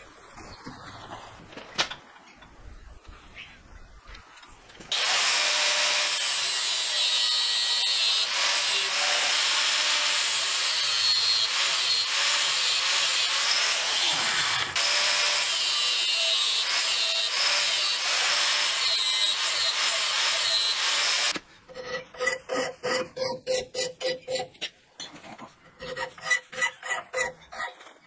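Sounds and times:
angle grinder grinding steel: 4.9 - 21.4.

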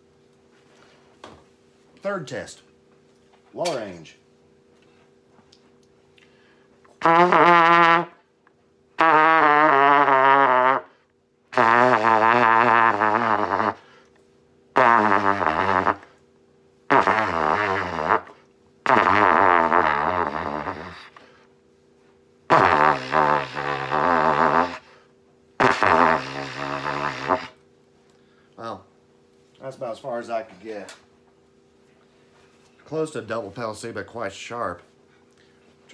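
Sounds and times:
trumpet low held notes: 7.0 - 8.2, 9.0 - 10.9.

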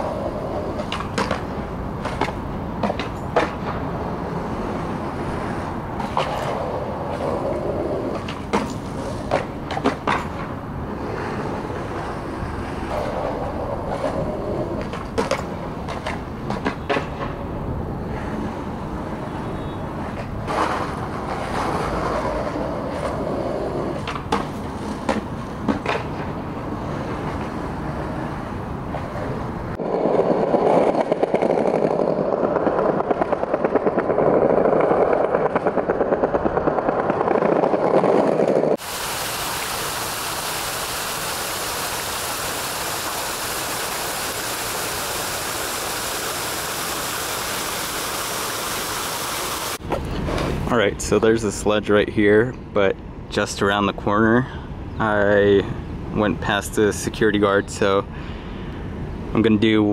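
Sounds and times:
skateboard wheels clacking on slabs: 0.0 - 38.9
outdoor street ambience: 0.0 - 59.9
fountain water falling: 38.8 - 49.8.

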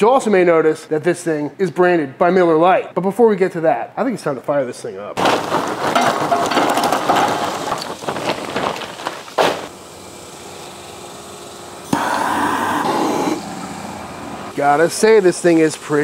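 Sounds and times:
charcoal clattering into grill: 5.2 - 9.7
lighter flame hissing: 11.5 - 13.9.

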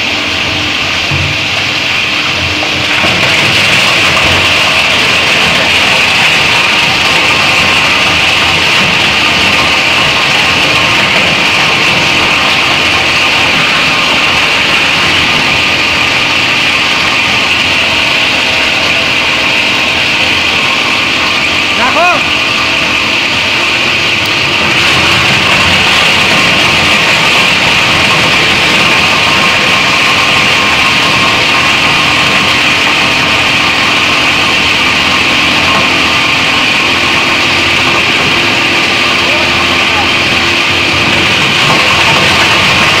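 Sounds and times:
plastic grinder chopping plastic: 0.0 - 43.0.

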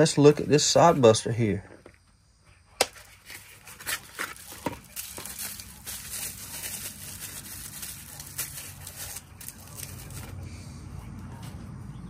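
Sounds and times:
packaging rustling: 2.9 - 10.3.

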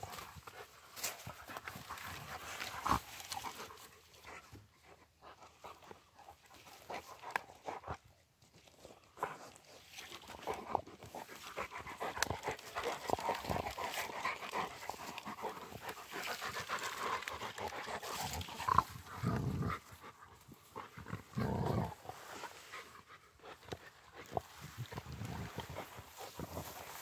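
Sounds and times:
dogs panting: 0.0 - 27.0
grass rustling: 0.0 - 27.0
wood crackling under chewing: 0.0 - 27.0
dog growling low: 10.5 - 27.0.

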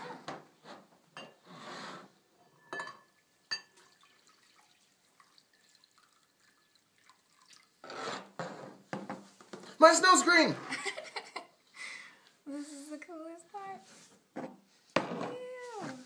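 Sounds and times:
glass clinks: 1.2 - 1.4, 2.6 - 3.8
water trickling: 3.4 - 7.9.

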